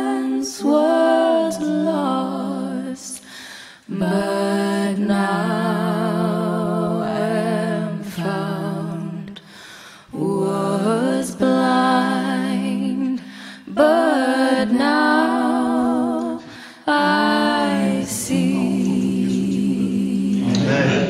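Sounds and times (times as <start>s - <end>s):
person singing long notes: 13.7s - 21.0s
low musical accompaniment: 17.2s - 21.0s.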